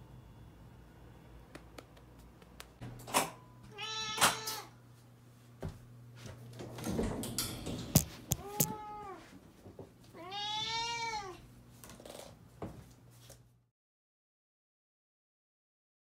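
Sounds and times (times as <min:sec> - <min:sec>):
cat meowing: 0:03.7 - 0:04.7, 0:08.4 - 0:09.2, 0:10.2 - 0:11.4.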